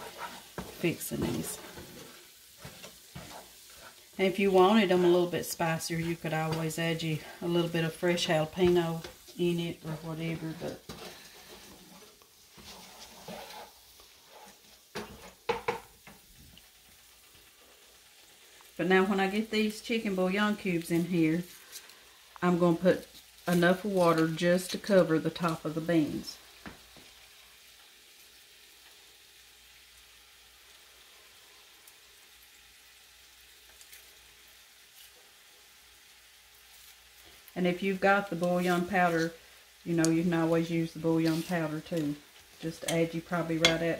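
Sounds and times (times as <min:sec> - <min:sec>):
spatula stirring beans in pan: 0:00.0 - 0:43.9
spices sizzling in oil: 0:00.0 - 0:43.9
spatula knocking against pan: 0:15.0 - 0:15.9.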